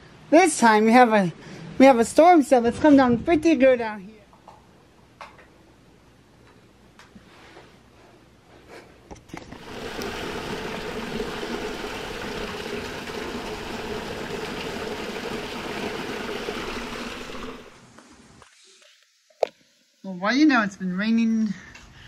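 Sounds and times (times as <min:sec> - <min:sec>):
heavy rain: 0:09.6 - 0:17.8.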